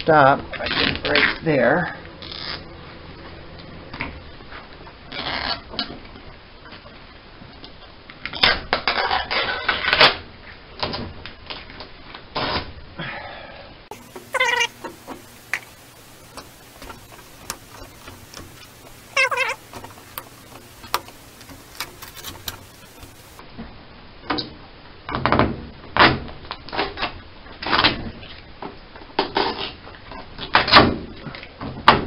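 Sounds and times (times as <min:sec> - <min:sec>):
high squeals: 0:13.9 - 0:23.4
fabric scraping and tearing: 0:16.8 - 0:23.4.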